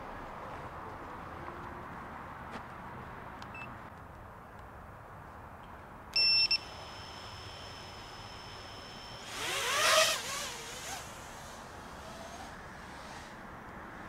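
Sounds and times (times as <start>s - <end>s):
short electronic beeps: 6.2s - 6.7s
drone motors whining at idle: 6.4s - 13.4s.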